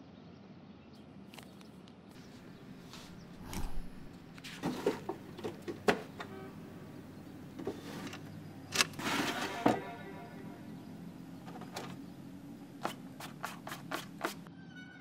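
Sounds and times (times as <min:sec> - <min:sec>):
drawer sliding open: 0:07.6 - 0:09.8.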